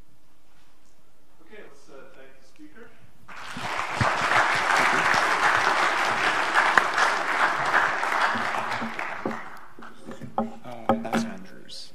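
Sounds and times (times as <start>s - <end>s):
audience applauding: 3.3s - 10.4s.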